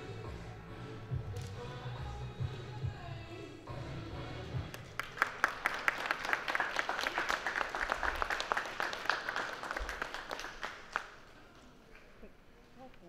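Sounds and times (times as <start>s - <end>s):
spectators clapping: 4.7s - 11.8s.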